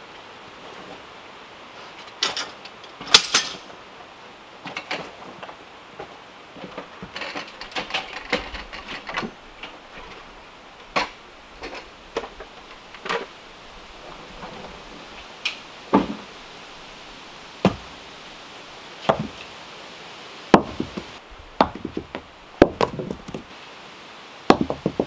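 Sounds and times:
wood pieces knocking together: 0:20.6 - 0:23.5, 0:24.5 - 0:25.0.

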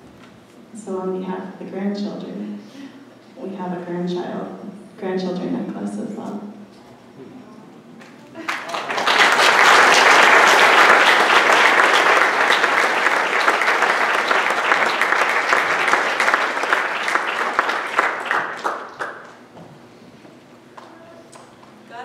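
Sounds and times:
congregation applauding: 0:08.4 - 0:19.4.

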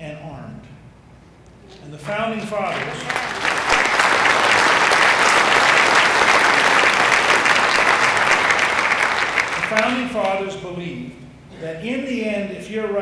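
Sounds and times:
audience applauding: 0:02.6 - 0:10.2.

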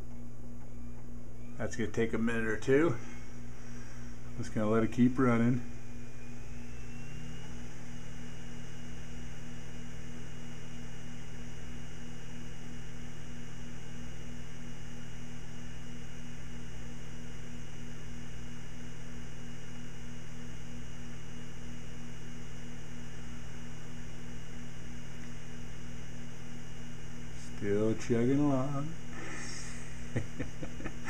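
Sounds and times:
disc burner humming: 0:00.0 - 0:31.0
faint hiss: 0:28.7 - 0:30.1.

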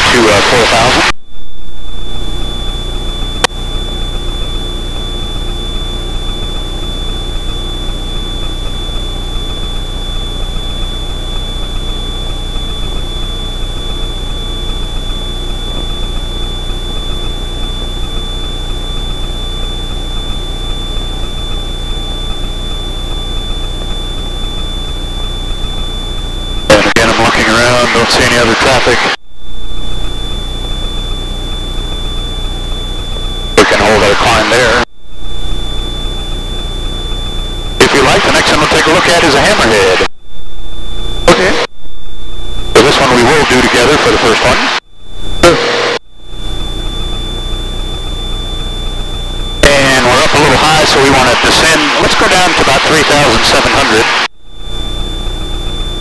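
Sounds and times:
high-pitched whine: 0:00.0 - 0:56.0
airplane engine drone: 0:01.9 - 0:56.0.

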